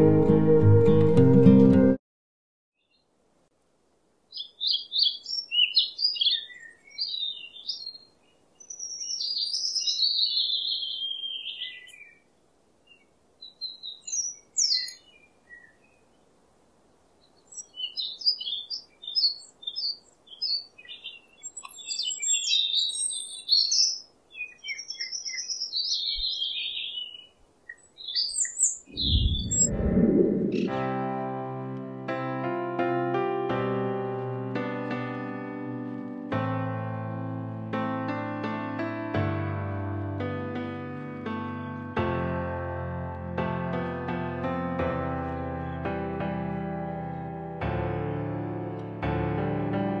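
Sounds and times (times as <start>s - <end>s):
faint steady background hiss: 2.8s - 10.2s, 11.1s - 29.0s
birds singing and chirping: 4.4s - 12.2s, 12.9s - 16.0s, 17.2s - 30.7s.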